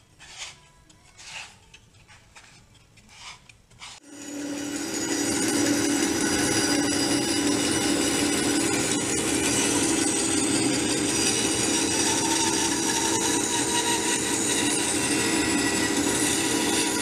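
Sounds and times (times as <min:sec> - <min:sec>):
bandsaw cutting wood: 0:04.0 - 0:17.0
bandsaw motor hum: 0:04.0 - 0:17.0.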